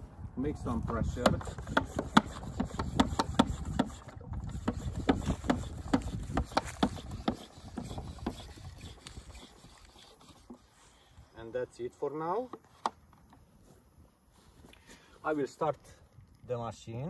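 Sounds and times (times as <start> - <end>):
hand pump strokes and clicks: 0.9 - 10.8.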